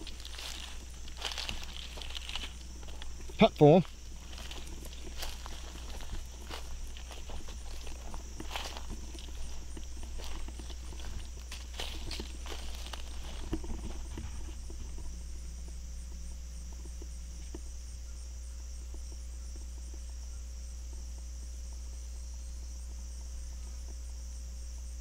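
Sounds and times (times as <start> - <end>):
footsteps rustling through grass: 0.0 - 15.0
insects chirping: 0.0 - 25.0.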